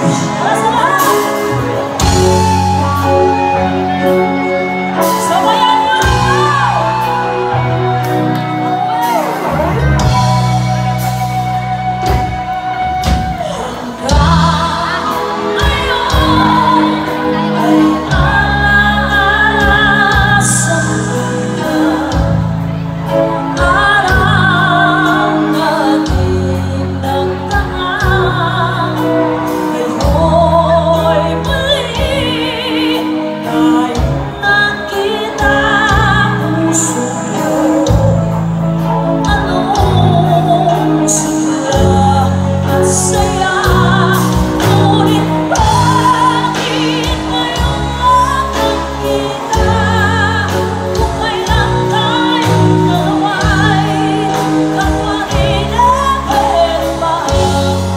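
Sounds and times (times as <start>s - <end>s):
drum kit beat: 0.0s - 18.5s
bass line: 0.0s - 25.5s
electric guitar: 0.0s - 57.9s
woman singing with vibrato: 0.0s - 57.9s.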